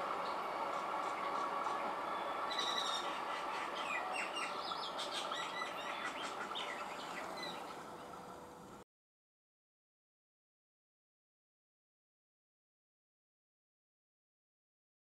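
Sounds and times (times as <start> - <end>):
birds chirping: 0.0 - 8.7
electric train humming: 0.0 - 8.8.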